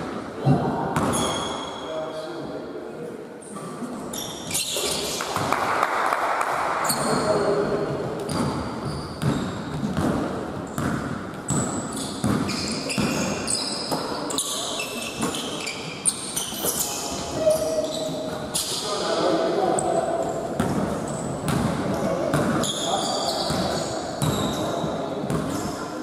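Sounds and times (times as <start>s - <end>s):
sneakers squeaking: 0.9s - 2.0s, 3.4s - 5.5s, 6.8s - 26.0s
basketball bouncing on court: 1.0s - 1.3s, 8.2s - 14.2s, 20.6s - 22.7s, 23.4s - 25.6s.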